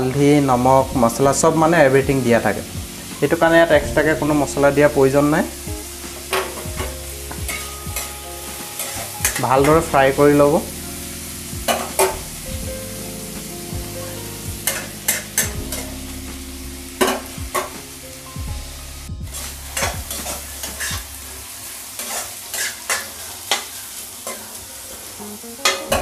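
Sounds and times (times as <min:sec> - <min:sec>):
vegetables sizzling: 0:00.0 - 0:26.0
spatula scraping and knocking pan: 0:14.6 - 0:15.8.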